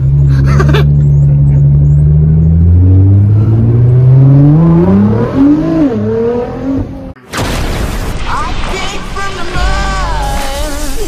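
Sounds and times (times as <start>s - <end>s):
car engine accelerating: 0.0s - 7.2s.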